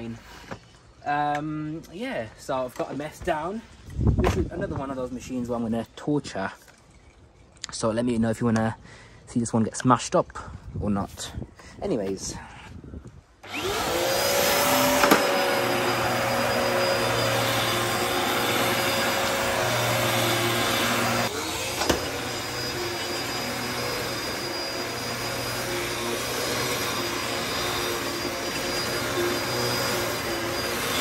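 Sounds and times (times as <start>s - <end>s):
vacuum cleaner motor whine: 13.4s - 31.0s.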